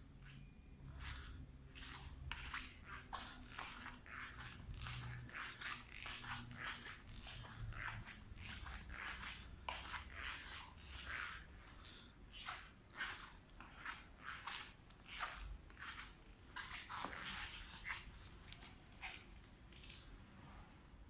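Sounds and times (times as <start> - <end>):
footsteps on hard floor: 16.6 - 18.0.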